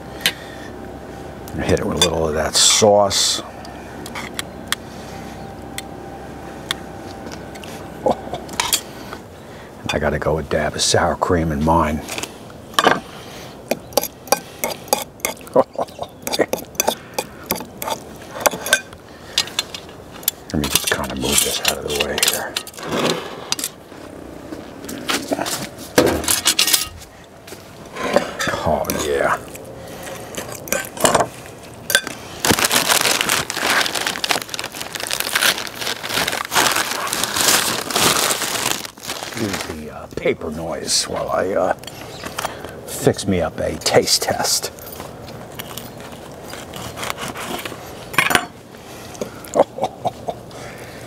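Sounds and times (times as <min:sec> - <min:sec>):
paper crinkling: 0:32.1 - 0:39.9
bread tearing: 0:32.4 - 0:39.8.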